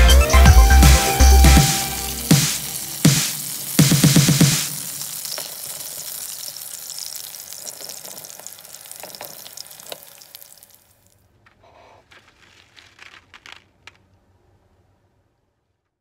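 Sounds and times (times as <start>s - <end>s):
hot oil sizzling: 0.4s - 11.0s
oil popping and crackling: 0.8s - 11.2s, 12.0s - 14.1s
faint clicks and rustles: 7.2s - 16.0s.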